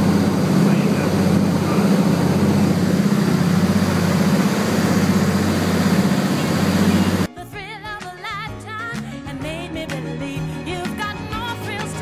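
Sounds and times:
aircraft engines droning: 0:00.0 - 0:07.3.

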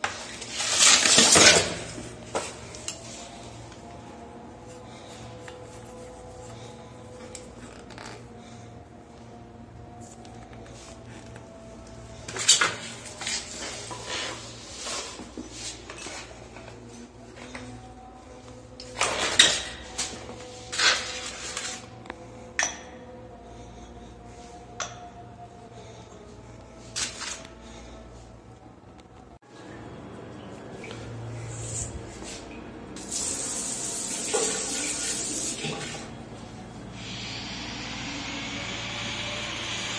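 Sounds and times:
water spraying from shower head: 0:33.0 - 0:35.7.

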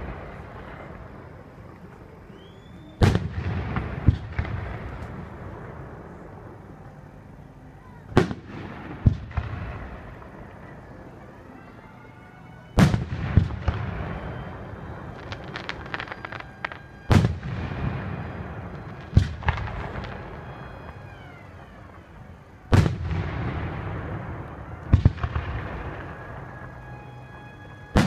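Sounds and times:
fireworks shells booming: 0:00.0 - 0:06.5, 0:12.8 - 0:28.0.

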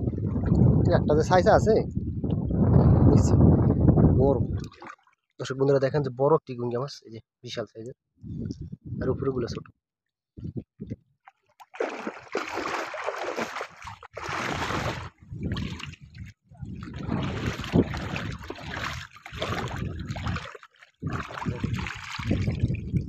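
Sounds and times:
shallow water splashing: 0:04.6 - 0:05.3, 0:11.3 - 0:23.0.

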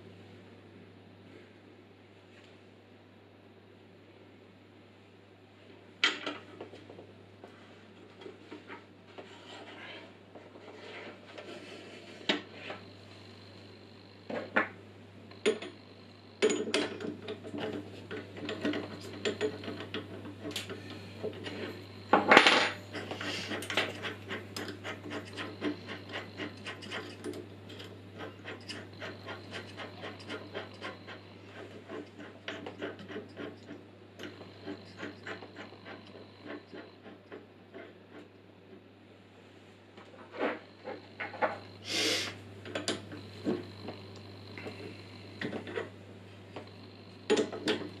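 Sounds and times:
steady low hum: 0:00.0 - 0:48.0
metallic clinks and knocks on drill press: 0:15.3 - 0:15.8, 0:16.4 - 0:25.7, 0:47.3 - 0:48.0.

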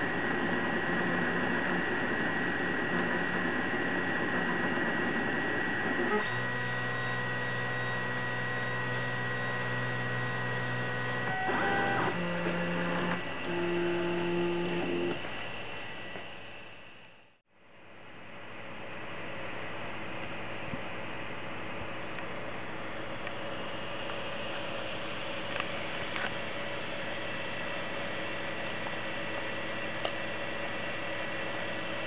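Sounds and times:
cooling fans whirring: 0:00.0 - 0:32.0
stepper motors pitched tones: 0:00.5 - 0:15.3.

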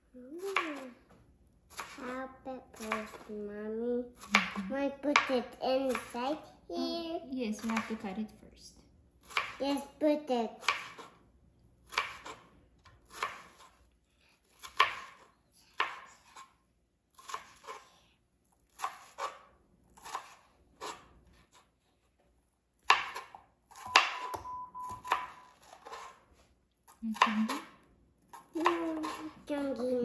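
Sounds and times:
knife chopping on cutting board: 0:09.3 - 0:09.6, 0:10.6 - 0:11.1, 0:11.9 - 0:12.5, 0:13.1 - 0:13.8, 0:14.6 - 0:15.2, 0:15.8 - 0:16.5, 0:22.8 - 0:26.2.

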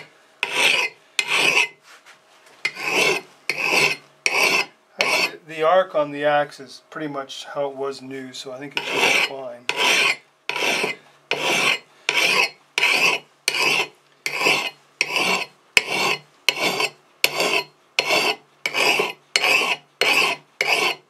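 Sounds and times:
file rasping on steel: 0:00.0 - 0:01.8, 0:02.6 - 0:05.4, 0:08.8 - 0:21.0.

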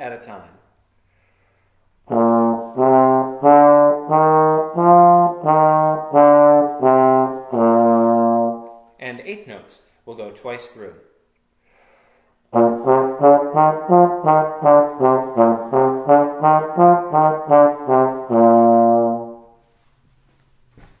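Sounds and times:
trombone playing scale: 0:02.0 - 0:08.8, 0:12.5 - 0:19.6.

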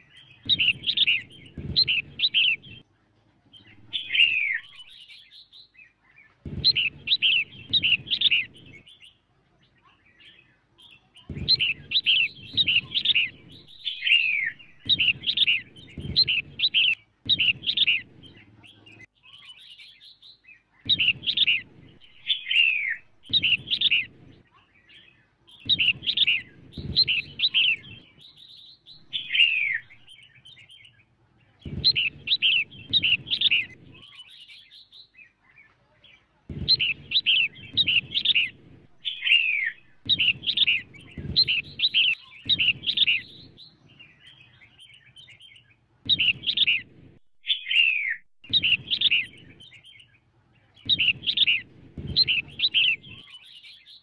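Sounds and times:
bird chirping calls: 0:00.0 - 0:02.8, 0:03.5 - 0:54.0.

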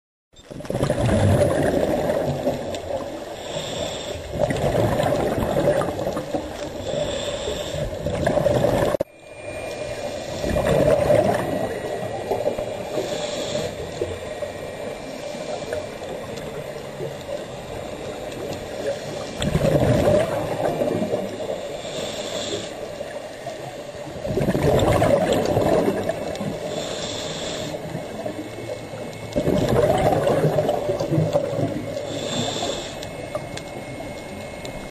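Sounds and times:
exhaled bubbles rushing: 0:00.5 - 0:03.2, 0:04.3 - 0:06.8, 0:07.8 - 0:09.1, 0:10.1 - 0:21.7, 0:24.1 - 0:26.9, 0:27.8 - 0:34.9
regulator inhale hiss: 0:03.0 - 0:04.6, 0:06.6 - 0:08.2, 0:11.6 - 0:19.5, 0:21.3 - 0:23.7, 0:26.2 - 0:29.0, 0:31.4 - 0:33.6.

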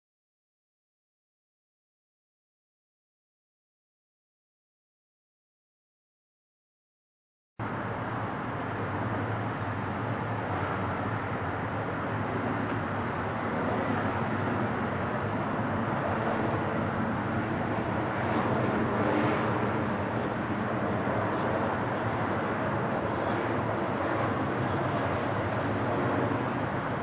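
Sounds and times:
jet engines rushing: 0:07.6 - 0:27.0.

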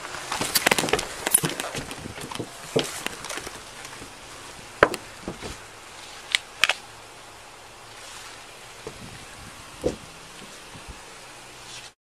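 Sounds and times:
gear knocking and rustling: 0:00.0 - 0:05.7
footsteps: 0:00.1 - 0:06.2.

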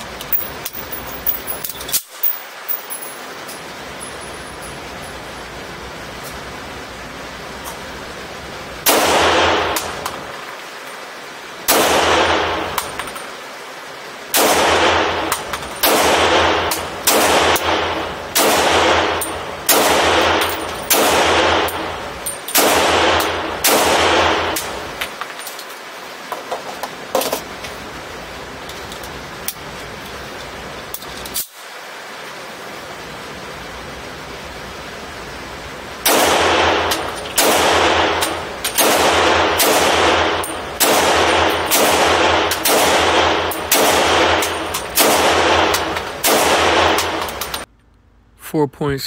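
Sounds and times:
pistol shots echoing indoors: 0:11.7 - 0:13.0, 0:14.3 - 0:24.9, 0:36.0 - 0:47.6.

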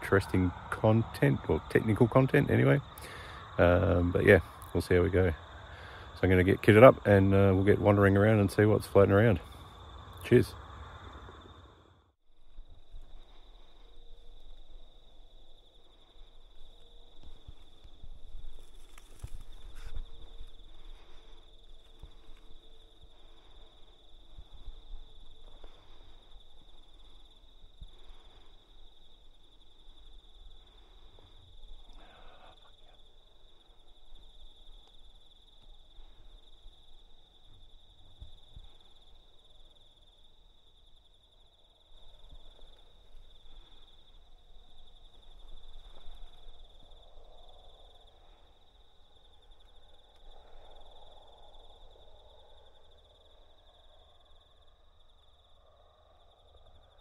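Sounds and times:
night insects trilling: 0:00.0 - 0:57.0
faint rustles: 0:12.4 - 0:39.5.

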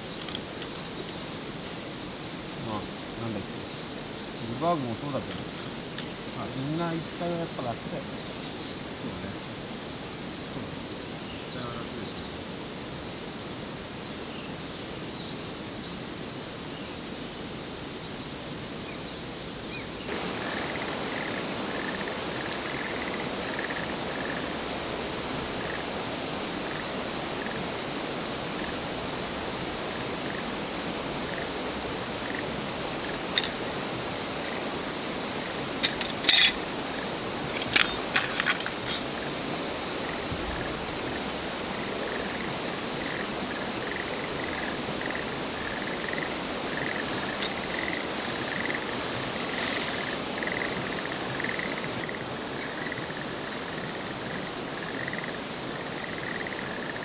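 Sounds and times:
outdoor background hiss: 0:00.0 - 0:57.0
tarp poles clinking: 0:35.8 - 0:36.6, 0:37.5 - 0:39.1.

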